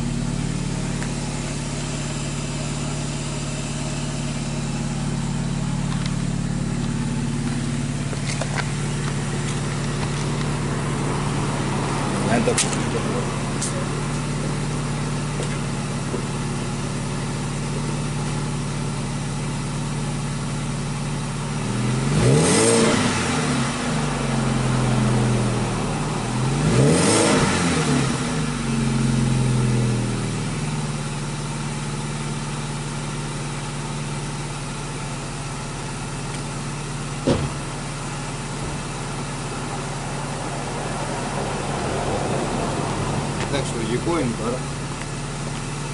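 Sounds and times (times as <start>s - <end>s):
car engine idling and revving: 0.0s - 45.9s
car door slamming: 37.2s - 37.7s.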